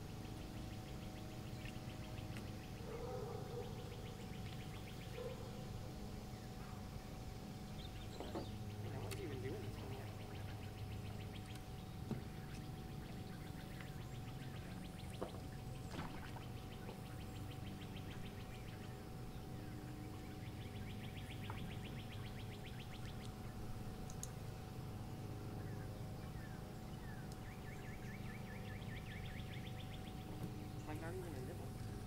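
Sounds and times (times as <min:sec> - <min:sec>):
low hum: 0:00.0 - 0:32.0
bird chirps: 0:07.7 - 0:24.3, 0:25.5 - 0:31.6
trills of rapid ticks: 0:24.0 - 0:24.4.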